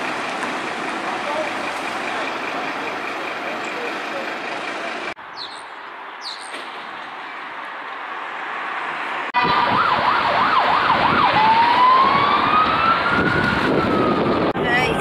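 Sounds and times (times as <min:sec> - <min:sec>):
traffic noise: 0:00.0 - 0:15.0
police siren: 0:09.4 - 0:15.0.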